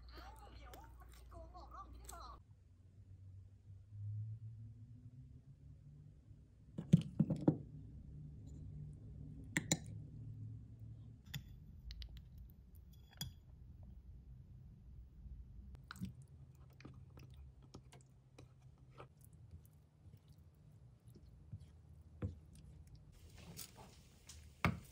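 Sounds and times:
spoon stirring yogurt: 0.0s - 2.3s, 11.0s - 14.0s, 15.7s - 24.9s
soft squishing: 0.0s - 2.4s, 15.7s - 24.9s.

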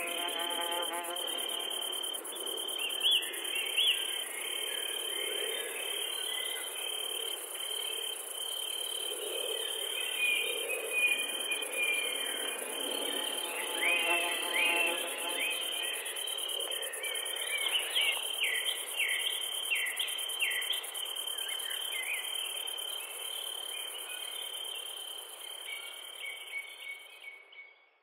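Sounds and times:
insects buzzing in a high trill: 0.0s - 27.3s.

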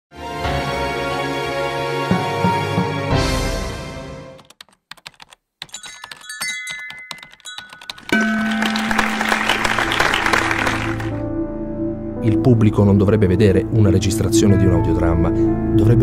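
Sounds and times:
music: 0.1s - 4.4s, 8.0s - 16.0s
typing keystroke clicks: 4.4s - 8.2s
sustained musical chord: 8.2s - 16.0s.

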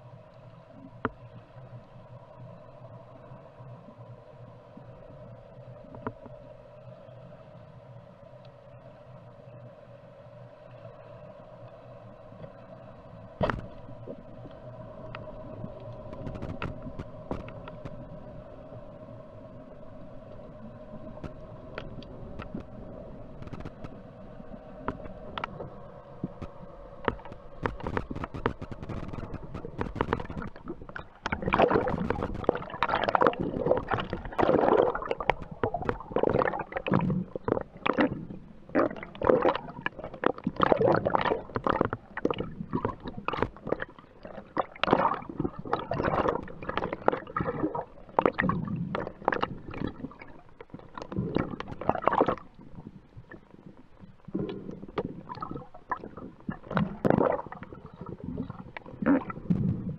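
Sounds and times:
muffled underwater gurgling: 13.4s - 59.9s.

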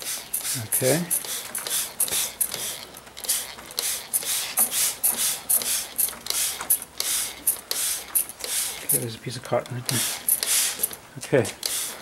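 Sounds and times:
spray bottle squirting: 0.0s - 9.1s, 9.9s - 11.0s, 11.6s - 12.0s.

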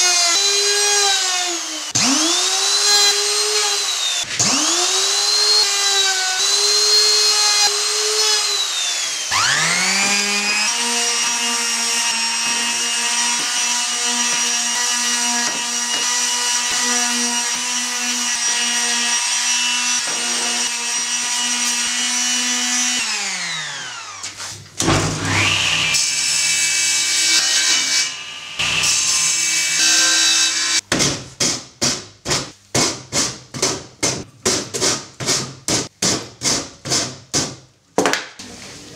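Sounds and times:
router motor whining: 0.0s - 16.9s, 17.7s - 24.3s, 25.2s - 26.4s
palm sander running: 0.0s - 26.7s.

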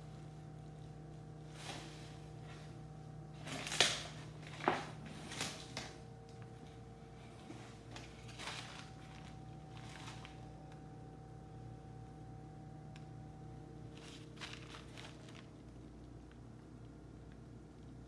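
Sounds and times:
steady low hum: 0.0s - 18.0s
handling rustles and knocks: 6.6s - 10.6s, 13.9s - 15.6s.

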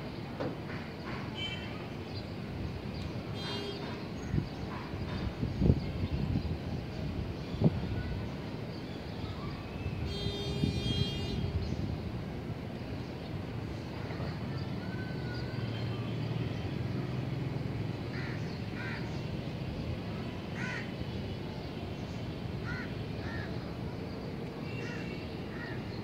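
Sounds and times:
crows cawing: 18.1s - 19.0s, 20.6s - 20.9s, 22.6s - 23.5s.

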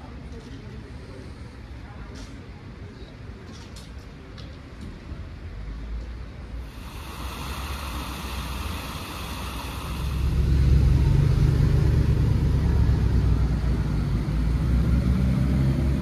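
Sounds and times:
car engine driving slowly past: 6.6s - 16.0s
fountain water splashing: 6.8s - 11.5s.

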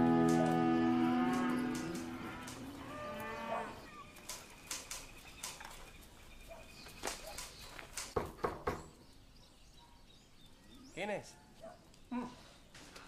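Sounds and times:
cattle mooing: 0.0s - 3.9s.

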